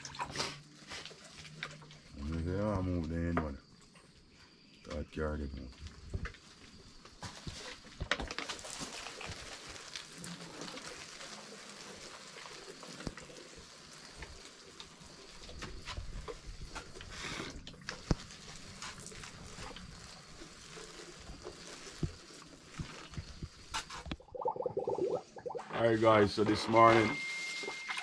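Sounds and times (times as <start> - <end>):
water spraying on leaves: 5.9 - 24.2.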